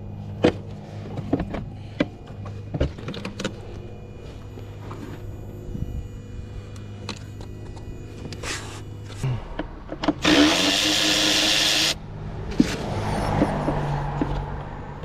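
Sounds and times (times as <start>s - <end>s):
low hum: 0.0s - 15.0s
power tool running: 10.0s - 12.0s.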